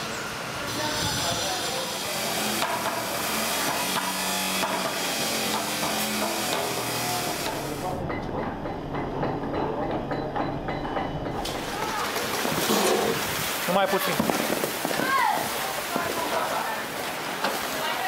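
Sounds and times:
steady background noise: 0.0s - 18.0s
hammers tapping stone: 2.6s - 11.4s.

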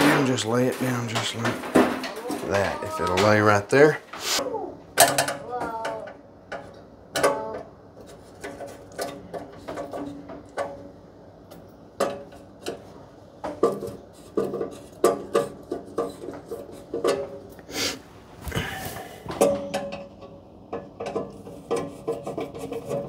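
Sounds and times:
metal tools clanking and scraping: 0.0s - 3.4s.

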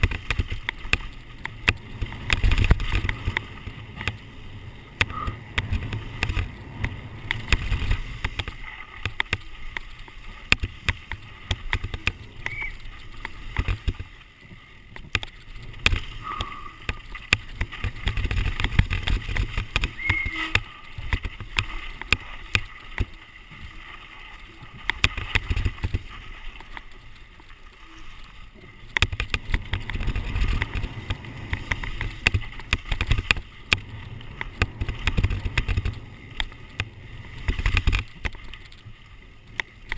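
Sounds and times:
bike rattling over bumps: 0.0s - 23.6s, 24.5s - 27.2s, 28.4s - 39.9s
wind rumble on microphone: 0.0s - 23.7s, 28.2s - 39.9s.

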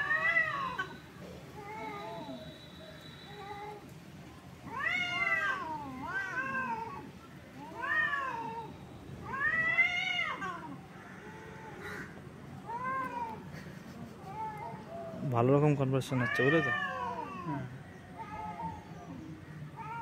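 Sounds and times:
cats yowling: 0.0s - 2.6s, 3.2s - 3.9s, 4.6s - 13.5s, 14.1s - 15.3s, 16.1s - 20.0s.

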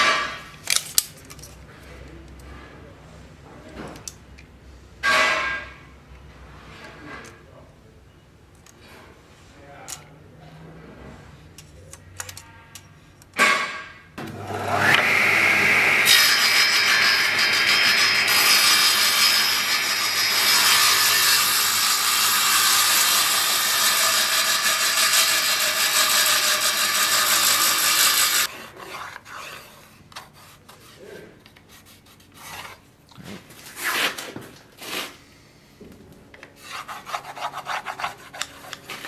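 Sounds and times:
table saw ripping wood: 14.2s - 29.2s, 33.6s - 35.2s
pencil scratching on wood: 36.6s - 39.0s.

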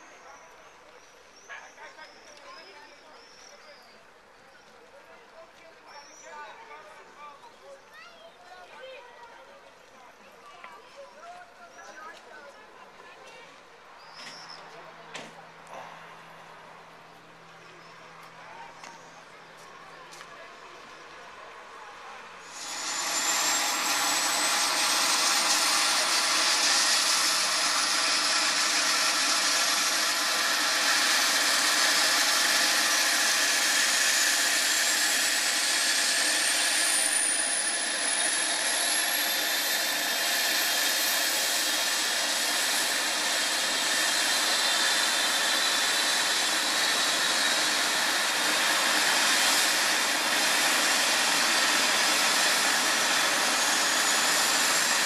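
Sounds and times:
helicopter engines and rotors: 21.9s - 55.0s
high turbine whine: 22.3s - 55.0s.

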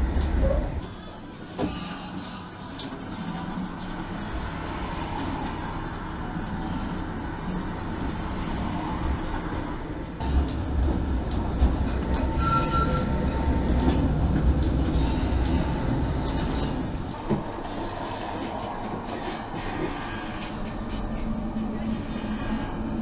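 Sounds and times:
tram rumbling on rails: 0.0s - 23.0s
wheels clicking over track joints: 10.2s - 17.2s.

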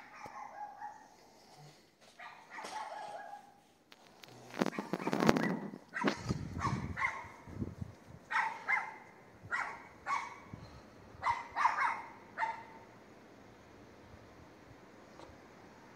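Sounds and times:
dog barking: 0.0s - 1.2s, 2.1s - 3.6s, 4.7s - 7.4s, 8.3s - 10.5s, 11.2s - 12.8s.

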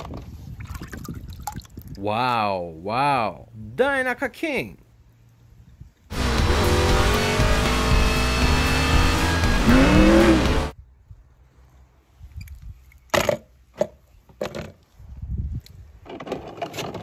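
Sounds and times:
race car engines: 6.1s - 10.8s
music: 6.2s - 10.7s.

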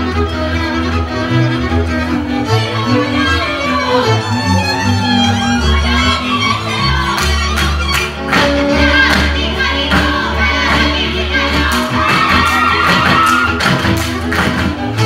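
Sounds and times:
double bass: 0.0s - 15.0s
fiddle melody: 0.0s - 15.0s
dancers slapping and stamping: 11.7s - 14.8s.

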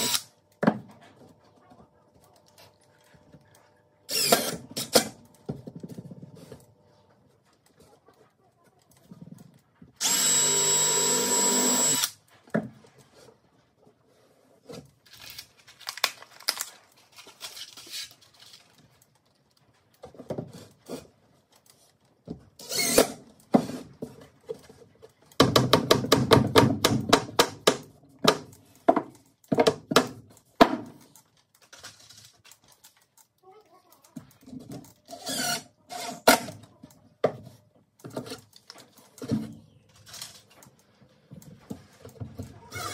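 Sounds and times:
cordless drill running: 0.0s - 0.3s, 4.1s - 4.6s, 10.0s - 12.2s, 22.6s - 23.1s, 35.2s - 35.6s.

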